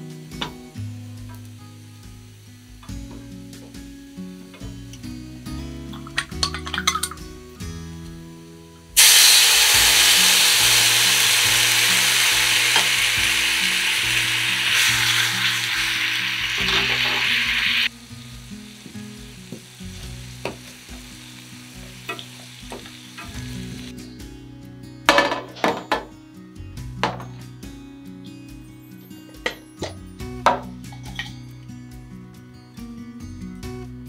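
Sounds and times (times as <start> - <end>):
sauce sizzling in a frying pan: 0.2 - 4.6, 9.0 - 23.9.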